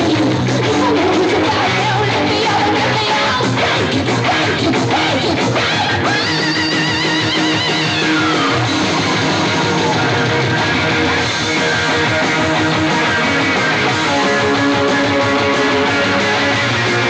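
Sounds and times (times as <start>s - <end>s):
rock song over sound system: 0.0s - 17.0s.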